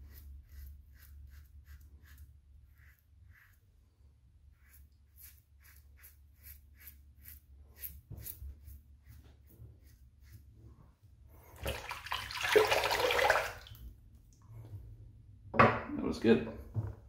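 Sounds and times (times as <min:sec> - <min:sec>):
razor scraping stubble: 0:00.0 - 0:03.7, 0:04.5 - 0:10.5
tap running water: 0:11.6 - 0:13.8.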